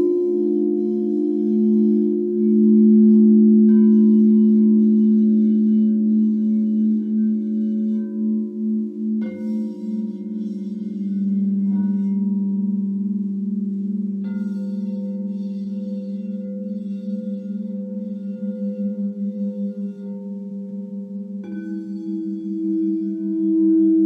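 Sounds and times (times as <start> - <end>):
soft singing bowl strikes: 0.0 - 12.9
crystal singing bowls ringing: 0.0 - 24.0.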